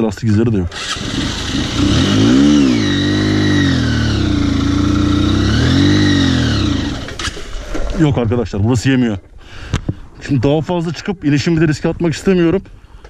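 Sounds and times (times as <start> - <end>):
motorcycle engine revving hard: 0.7 - 7.3.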